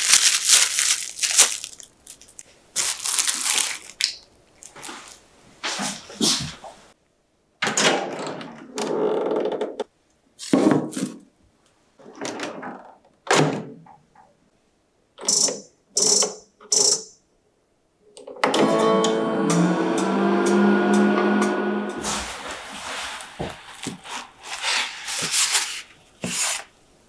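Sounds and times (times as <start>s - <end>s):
sustained musical chord: 18.5s - 22.9s.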